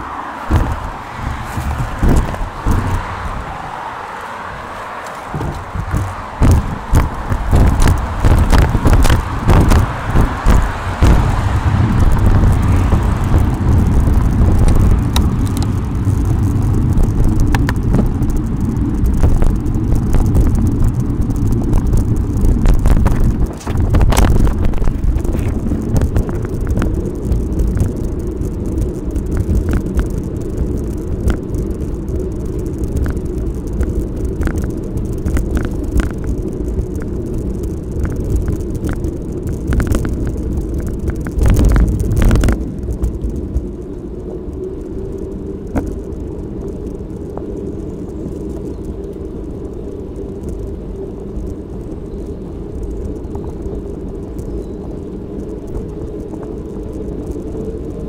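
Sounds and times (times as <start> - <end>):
bicycle rattles and knocks: 0.0 - 58.0
bicycle tyre rumble: 0.0 - 58.0
wind: 0.0 - 58.0.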